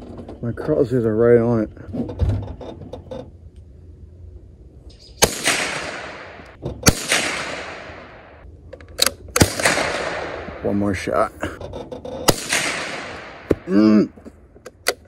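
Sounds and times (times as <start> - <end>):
rifle gunshots echoing: 5.2 - 8.4, 9.1 - 11.1, 12.3 - 13.7.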